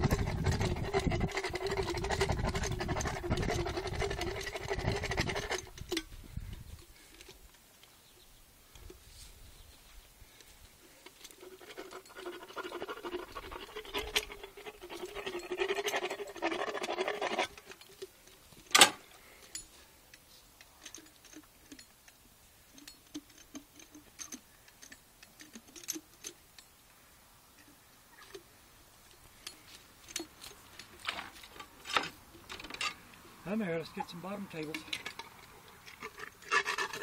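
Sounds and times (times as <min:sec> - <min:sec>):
dental float scraping teeth: 0:00.0 - 0:05.8, 0:35.2 - 0:37.0.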